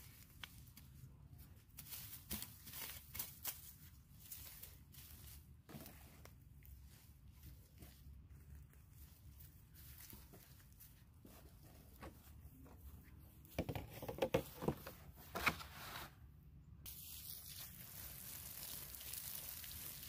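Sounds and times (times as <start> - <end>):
rustling and crackling of plants: 0.0 - 15.5, 16.8 - 20.0
water spraying from a hose: 16.9 - 20.0.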